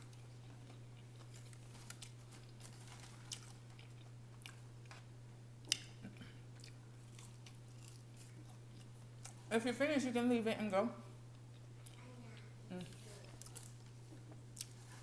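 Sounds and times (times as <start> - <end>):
quiet chewing: 0.0 - 9.5, 11.3 - 15.0
steady low hum: 0.0 - 15.0
food packaging crinkles: 1.0 - 4.1, 13.0 - 14.0.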